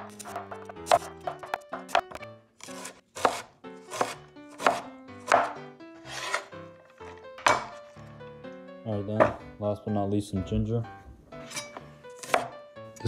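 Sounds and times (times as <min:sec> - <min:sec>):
cleaver chopping on wooden board: 0:00.0 - 0:06.4, 0:07.4 - 0:07.8, 0:12.2 - 0:12.6.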